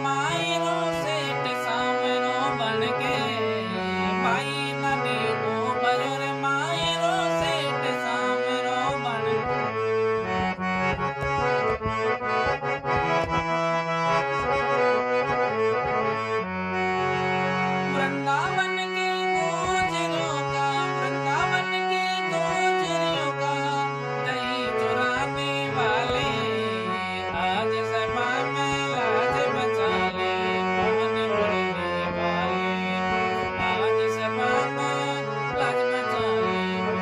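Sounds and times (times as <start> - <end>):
harmonium melody: 0.0 - 37.0.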